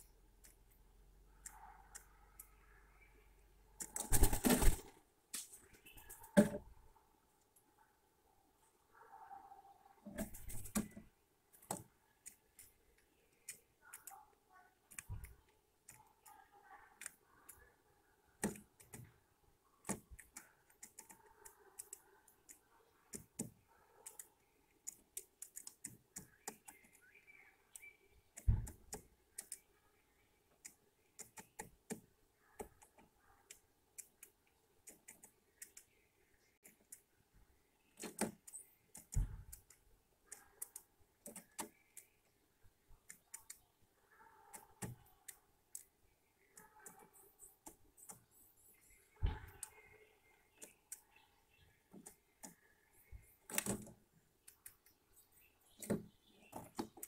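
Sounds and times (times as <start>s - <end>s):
bird pecking on wood: 30.6s - 36.0s, 37.8s - 42.2s.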